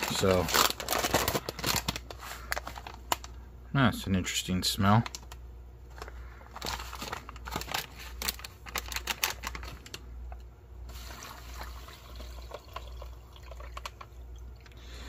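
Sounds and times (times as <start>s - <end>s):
foil pouch crinkling: 0.0s - 3.4s, 5.0s - 14.0s
water pouring into pouch: 10.9s - 14.7s.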